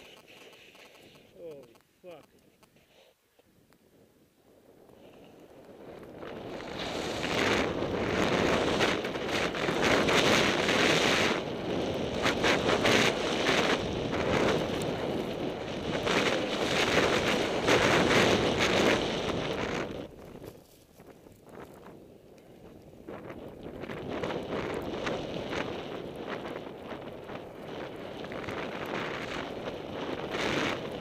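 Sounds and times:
wind rushing over microphone: 3.5s - 31.0s
hiss of snow: 6.4s - 9.0s.

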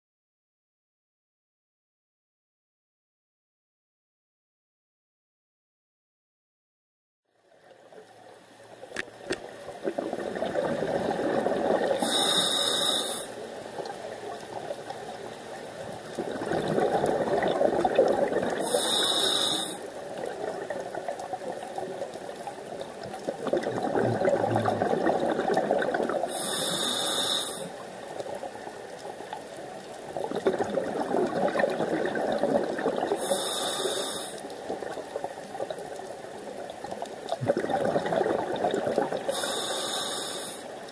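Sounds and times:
exhaled bubbles rushing: 9.3s - 12.2s, 16.0s - 18.7s, 20.1s - 26.5s, 30.0s - 33.3s, 36.6s - 39.6s
regulator hiss: 12.0s - 13.4s, 18.6s - 19.8s, 26.3s - 27.8s, 33.2s - 34.4s, 39.3s - 40.7s.

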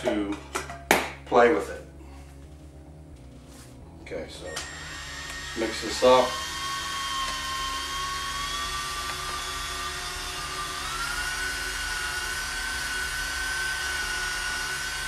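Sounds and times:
electric drill motor whine: 4.4s - 15.0s.

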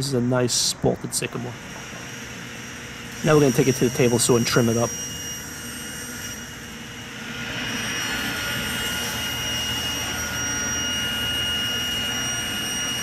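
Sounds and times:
table saw cutting wood: 1.4s - 13.0s.

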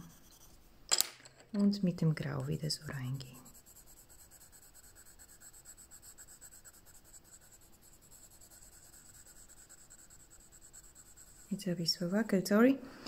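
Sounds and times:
pencil scratching on paper: 0.0s - 0.7s, 2.7s - 12.4s.

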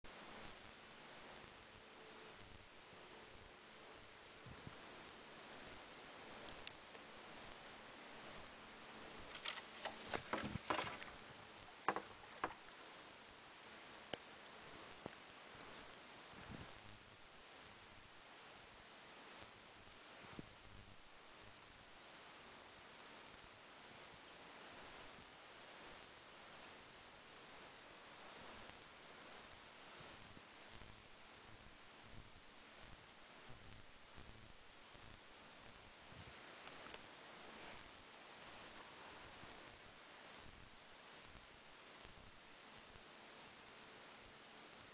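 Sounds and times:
high-pitched insect chorus: 0.1s - 44.9s
faint clicks and knocks: 9.3s - 12.7s.

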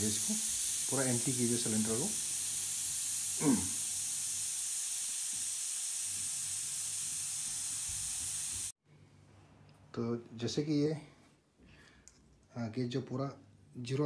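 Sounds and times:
high-pressure air hissing: 0.0s - 8.8s.

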